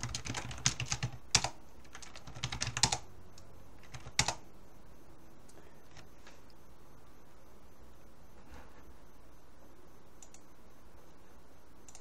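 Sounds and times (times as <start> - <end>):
computer keyboard typing: 0.0 - 4.4.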